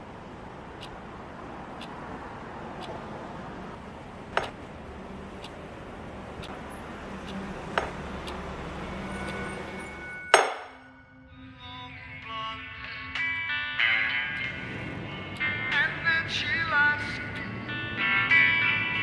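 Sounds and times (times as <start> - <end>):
clock ticking: 0.0 - 10.7, 14.3 - 16.6
city traffic hum: 0.0 - 19.0
sharp ringing knock: 10.2 - 10.9.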